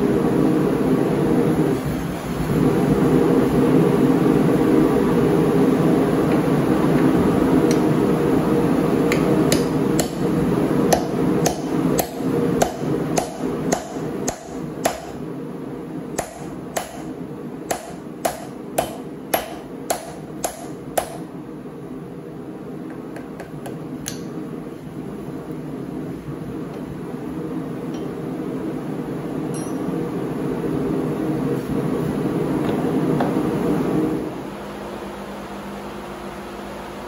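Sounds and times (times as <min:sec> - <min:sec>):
hammer striking anvil: 0:10.9 - 0:15.2, 0:16.2 - 0:17.1, 0:17.7 - 0:21.2, 0:29.5 - 0:29.9.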